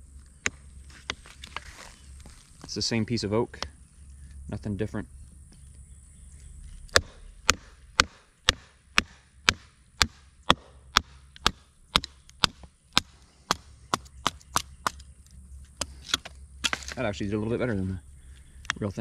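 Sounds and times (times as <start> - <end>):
baton knocking on knife splitting wood: 6.9 - 15.0.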